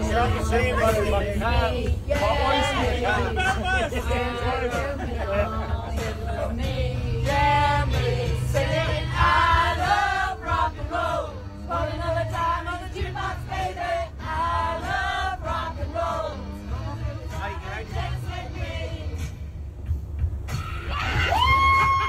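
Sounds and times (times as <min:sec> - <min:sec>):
group singing in chorus: 0:00.9 - 0:16.4.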